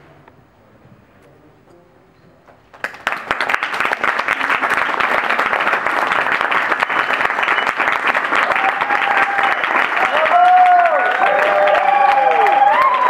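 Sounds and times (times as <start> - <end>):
audience applauding: 2.7 - 13.0
voices cheering: 8.3 - 13.0.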